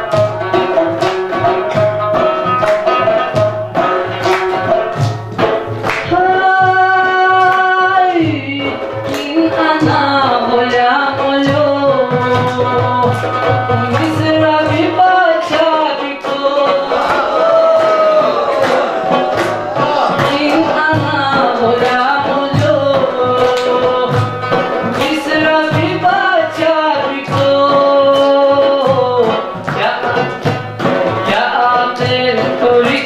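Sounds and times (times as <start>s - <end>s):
hand drum beat: 0.0s - 33.0s
plucked strings: 0.0s - 33.0s
man singing: 6.0s - 33.0s.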